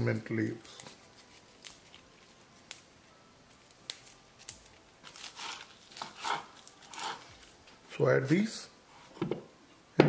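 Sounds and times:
mint stems snapping: 1.6 - 1.9, 3.7 - 6.0.

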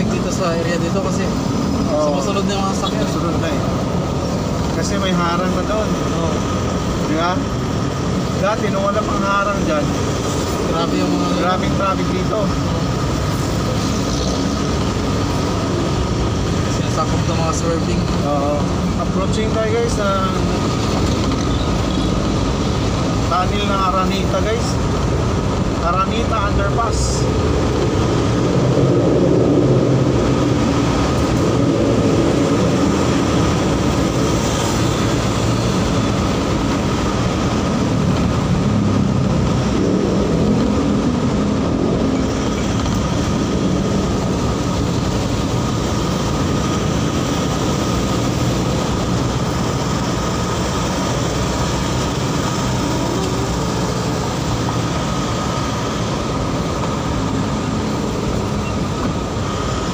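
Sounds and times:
vehicle driving rumble: 0.0 - 59.9.

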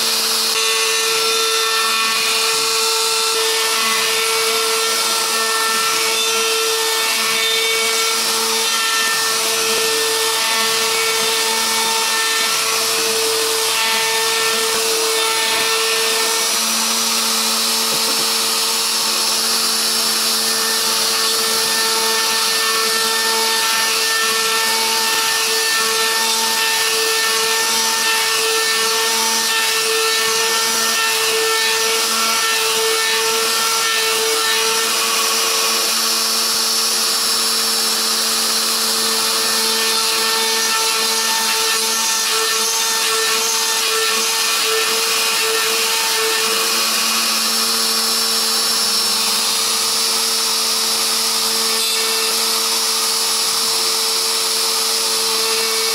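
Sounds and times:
router spindle high-pitched whine: 0.0 - 55.9
hiss of cutting wood: 17.7 - 19.2.

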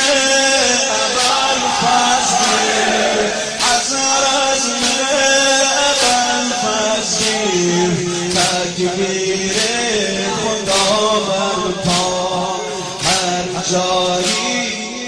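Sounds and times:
man chanting a lament: 0.0 - 15.0
sharp slap-like beat: 1.1 - 14.8.

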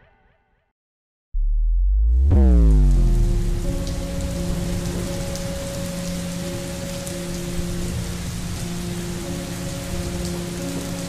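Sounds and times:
loud deep steady drone: 1.4 - 5.4.

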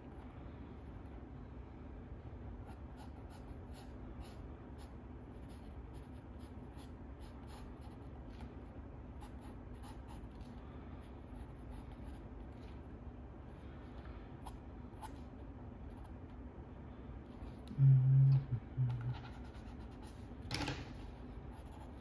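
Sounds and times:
steady low hum: 0.0 - 22.0
pencil scratching on paper: 2.6 - 8.2, 9.2 - 12.3, 19.1 - 20.3, 21.5 - 22.0.

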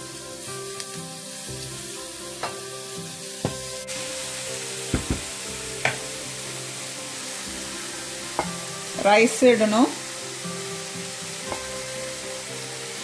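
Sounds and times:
food sizzling in frying pan: 0.0 - 13.0
spatula knocking against pan: 4.9 - 5.3.

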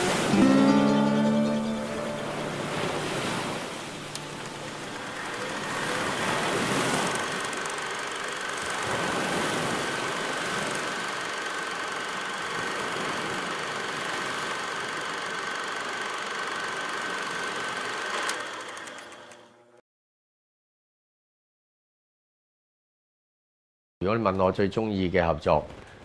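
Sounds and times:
small machine whining and rattling: 2.6 - 19.8.

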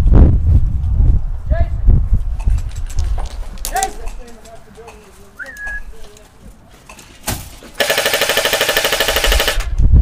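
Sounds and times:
airsoft rifle full-auto burst: 7.8 - 9.7.

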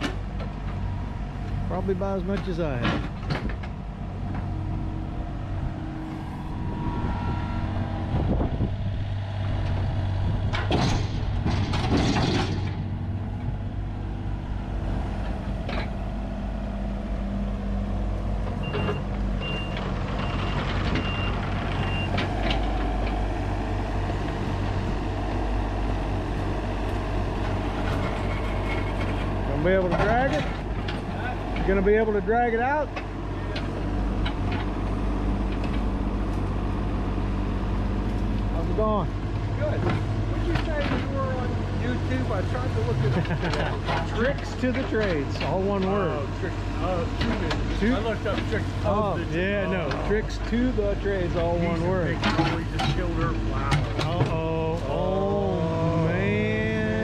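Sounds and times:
excavator diesel engine: 0.0 - 57.0
reversing beeps: 18.6 - 22.2.

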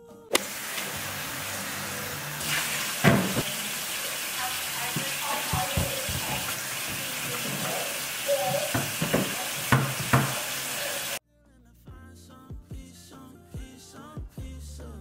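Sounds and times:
background music: 0.0 - 3.5, 11.2 - 15.0
faucet running into sink: 0.4 - 11.2
dishes and utensils clinking: 4.8 - 11.0.

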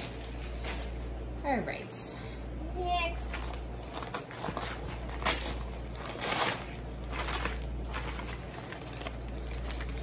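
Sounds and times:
newspaper rustling and crinkling: 3.2 - 10.0.

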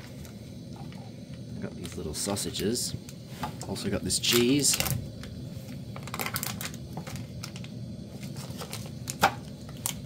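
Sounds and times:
gas stove running: 0.0 - 10.0
packaging crinkling: 6.0 - 10.0.

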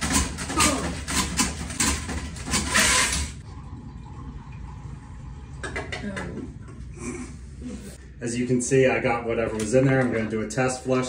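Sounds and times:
auger cable scraping and rattling: 0.0 - 3.4.

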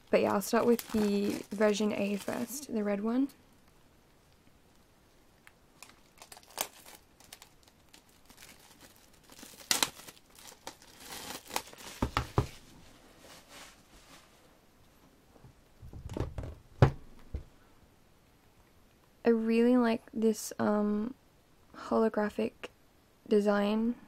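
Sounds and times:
plastic wrap crinkling and tearing: 0.0 - 2.8, 5.4 - 12.6
low thumps: 15.4 - 17.6.

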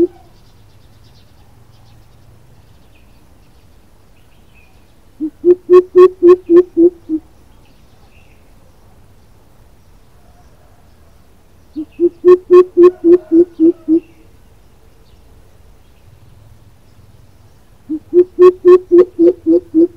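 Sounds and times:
bird deep hoots: 17.9 - 19.9.

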